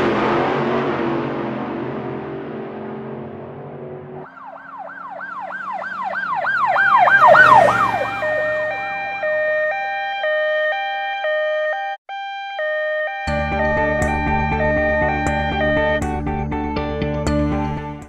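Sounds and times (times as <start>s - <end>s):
engine: 0.0s - 9.9s
fire engine siren: 4.1s - 16.5s.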